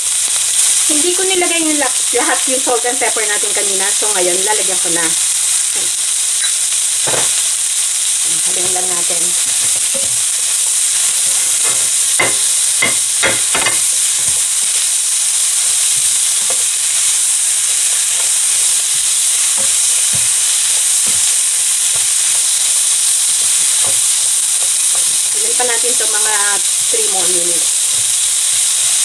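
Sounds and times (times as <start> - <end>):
vegetables sizzling in oil: 0.0 - 29.0.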